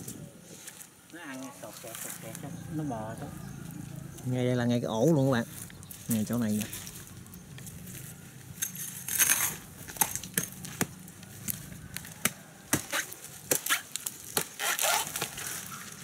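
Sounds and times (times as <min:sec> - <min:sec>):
palm fibres cracking and snapping: 0:05.5 - 0:16.0
fibrous tissue tearing: 0:12.8 - 0:16.0.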